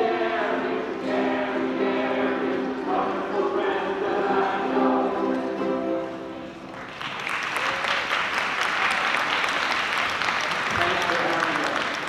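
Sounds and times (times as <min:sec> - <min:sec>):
ukulele group playing: 0:00.0 - 0:06.9
audience applause: 0:06.7 - 0:12.0.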